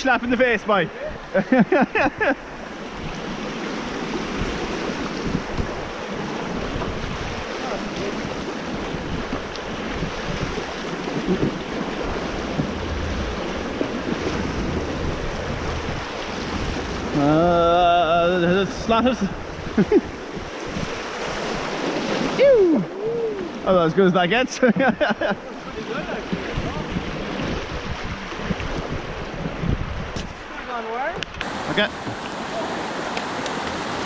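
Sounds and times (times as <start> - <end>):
rushing whitewater: 0.0 - 34.0
person calling out: 22.4 - 23.6.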